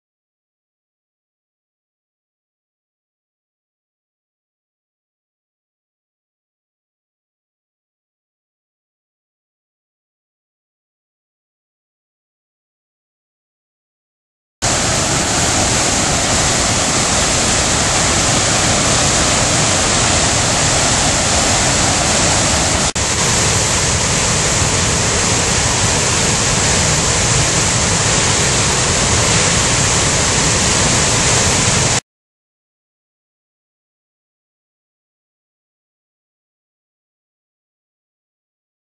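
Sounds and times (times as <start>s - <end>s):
river rushing through rapids: 14.6s - 32.0s.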